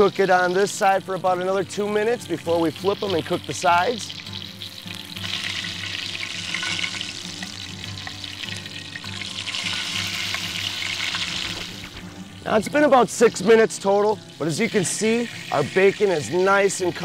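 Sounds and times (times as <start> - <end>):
kebabs sizzling in hot oil: 0.0 - 17.0
metal tongs turning food: 4.4 - 12.0.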